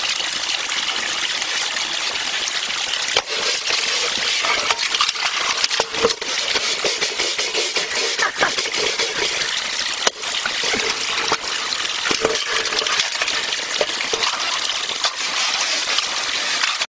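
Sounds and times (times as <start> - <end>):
water gushing: 0.0 - 16.9
metal bowl knocking and scraping: 3.2 - 15.6.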